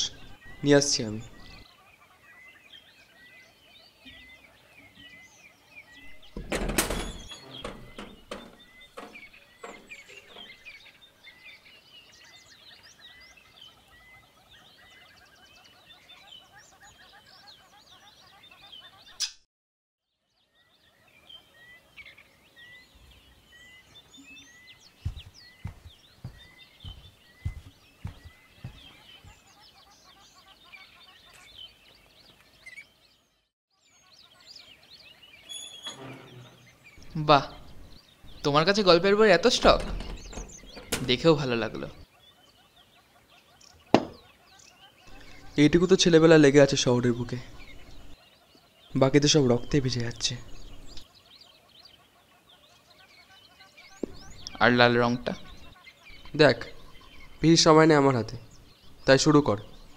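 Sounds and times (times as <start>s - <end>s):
small birds chirping: 0.0s - 59.9s
low thumps: 6.1s - 10.7s, 25.0s - 29.0s, 39.4s - 42.0s.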